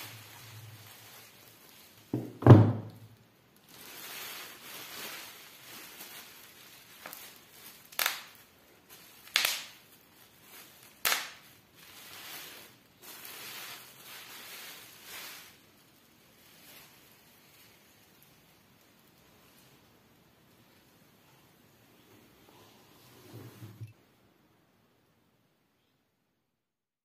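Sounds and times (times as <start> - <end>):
bubble wrap bubbles popping: 0.0 - 20.4
bubble wrap crinkling: 0.0 - 22.4.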